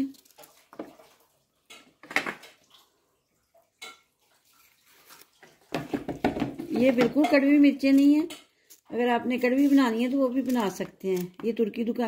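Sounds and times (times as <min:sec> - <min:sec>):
knife slicing chillies: 0:09.4 - 0:11.5.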